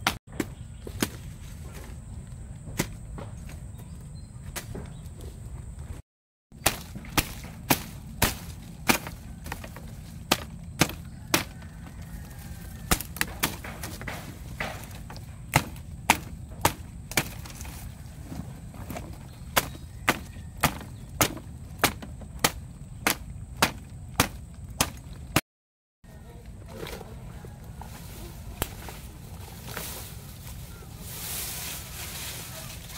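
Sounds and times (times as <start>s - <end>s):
blade chopping shrub stems: 0.0s - 2.0s, 2.7s - 5.1s, 6.6s - 25.4s, 27.8s - 30.5s.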